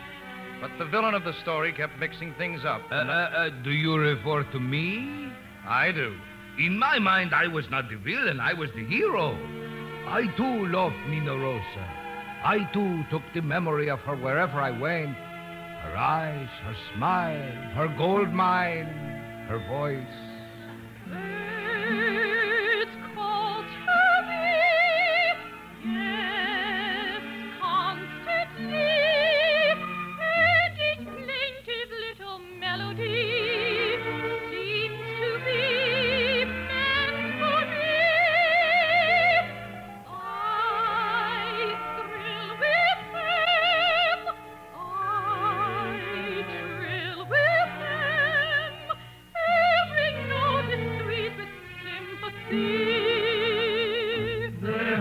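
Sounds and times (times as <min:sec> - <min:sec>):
orchestral accompaniment: 0:00.0 - 0:31.2, 0:33.1 - 0:55.0
soprano singing opera: 0:20.6 - 0:55.0.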